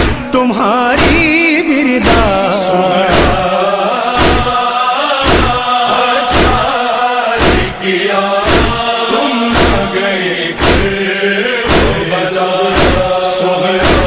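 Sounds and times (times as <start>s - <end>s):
chest-beating thuds: 0.0s - 3.6s, 4.2s - 4.6s, 5.2s - 5.7s, 6.3s - 6.8s, 7.4s - 7.8s, 8.4s - 13.2s, 13.8s - 14.0s
voices chanting a lament: 0.0s - 14.0s.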